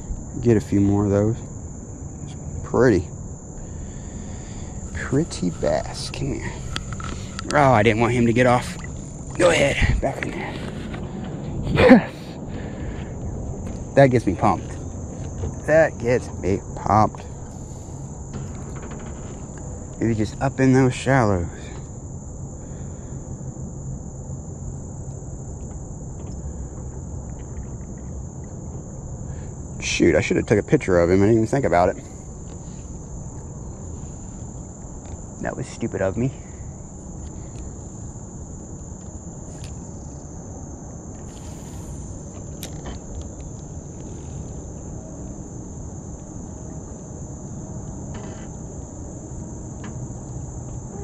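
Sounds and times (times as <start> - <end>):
low steady rumble: 0.0 - 18.4
insects trilling: 0.0 - 51.0.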